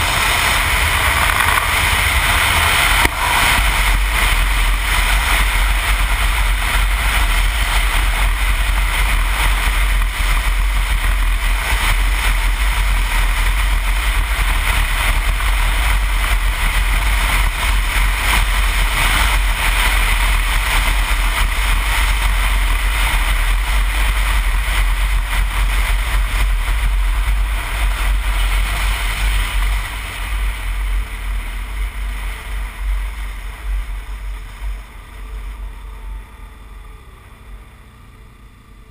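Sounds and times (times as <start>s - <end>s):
motorcycle engine rumble: 0.0s - 38.9s
wind rush on motorcycle: 0.0s - 38.9s.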